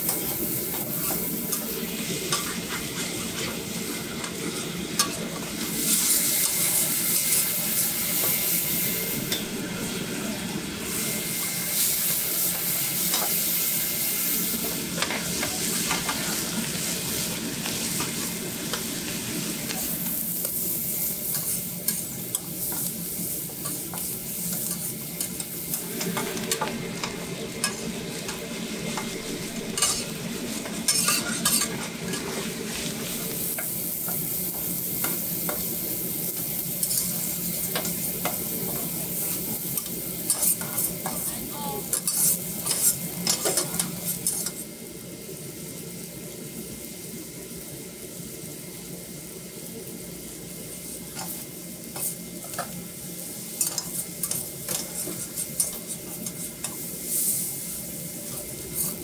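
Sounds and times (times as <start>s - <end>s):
food sizzling on a griddle: 0.0s - 59.0s
metal spatulas scraping: 29.7s - 30.1s, 30.8s - 32.4s.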